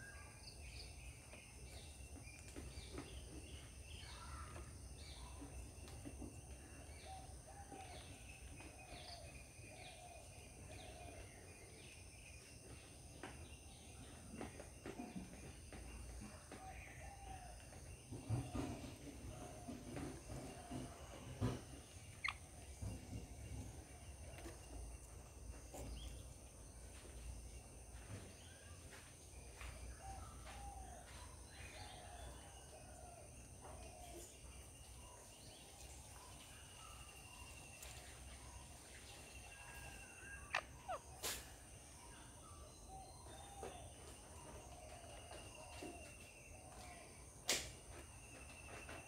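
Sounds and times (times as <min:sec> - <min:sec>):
faint distant bird calls: 0:13.7 - 0:49.0.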